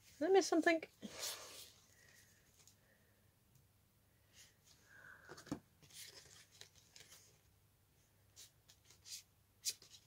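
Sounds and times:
cards rustling and tapping: 5.2 - 7.5.

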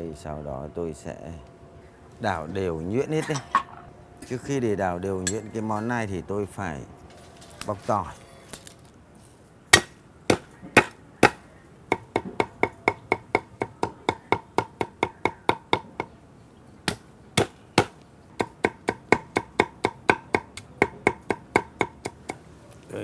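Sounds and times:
cleaver chopping on wooden board: 9.7 - 16.1, 16.9 - 22.4.

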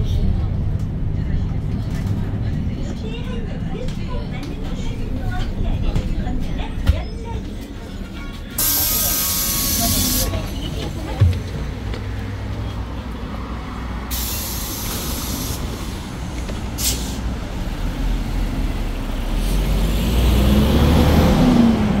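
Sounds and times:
bus engine running: 0.0 - 22.0
air brakes hissing: 8.6 - 10.4, 14.1 - 15.9, 16.8 - 17.3.

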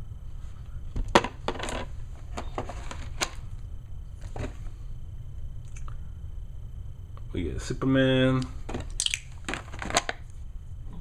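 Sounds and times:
plastic pieces clicking: 9.0 - 10.2.

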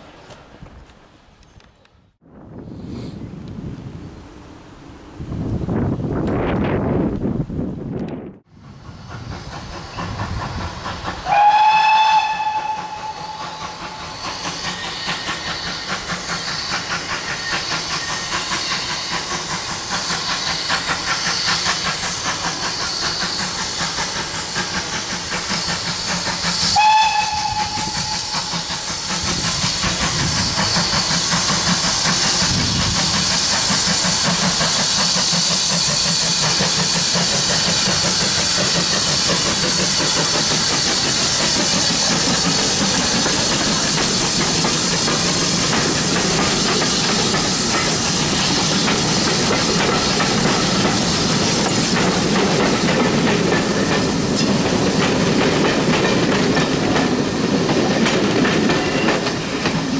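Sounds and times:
steam locomotive exhaust beats: 2.2 - 59.9
steam whistle blast: 11.2 - 15.8, 26.5 - 29.0.

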